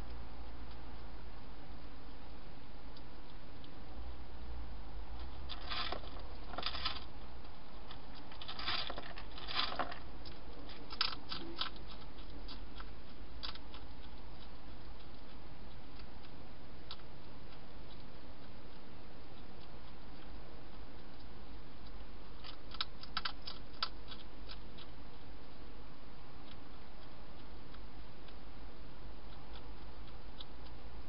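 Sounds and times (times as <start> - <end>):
hedgehog crunching and rustling: 5.1 - 25.6.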